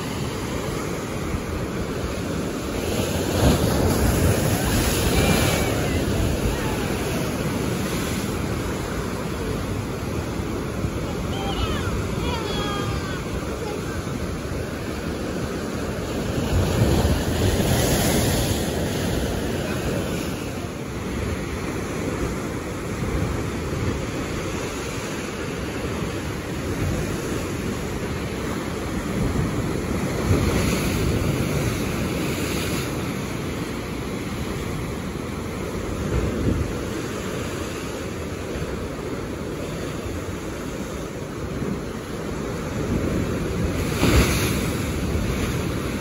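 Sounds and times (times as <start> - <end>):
sea surf breaking on rocks: 0.0 - 46.0.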